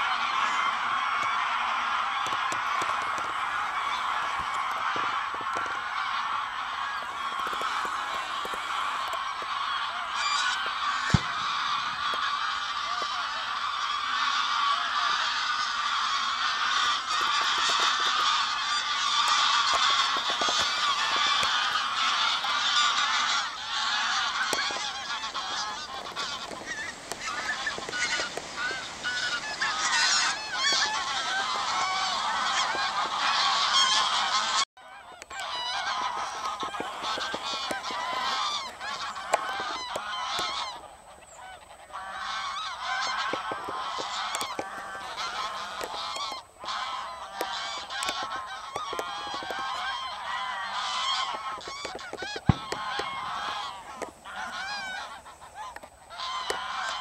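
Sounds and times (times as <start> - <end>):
geese honking: 0.0 - 57.0.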